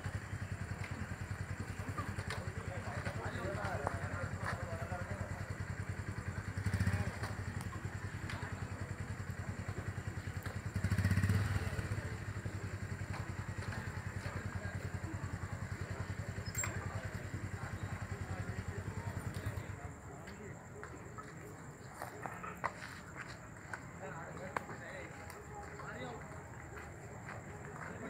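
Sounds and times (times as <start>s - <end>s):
small engine puttering: 0.0s - 19.8s.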